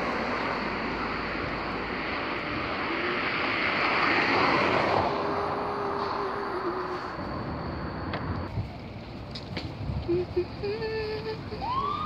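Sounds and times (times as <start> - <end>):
steady outdoor roar: 0.0 - 12.0
wind buffeting microphone: 5.2 - 11.9.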